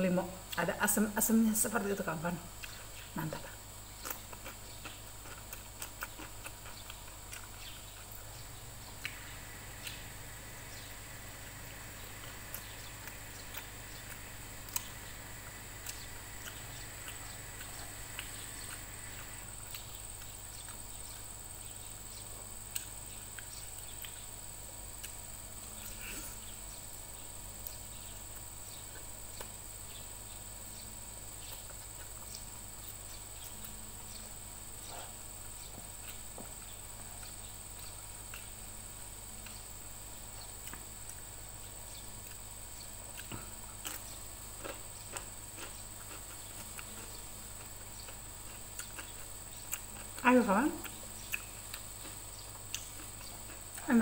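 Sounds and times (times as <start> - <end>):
chewing and eating with hands: 2.6 - 26.4, 27.6 - 29.6, 31.4 - 34.2, 34.8 - 39.6, 40.4 - 41.4, 42.2 - 54.0
low hum: 8.1 - 20.5.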